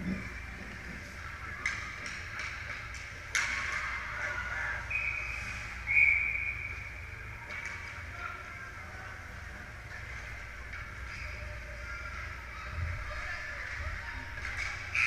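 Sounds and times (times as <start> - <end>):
ice rink hum: 0.0 - 15.0
referee's whistle blasts: 4.9 - 6.8.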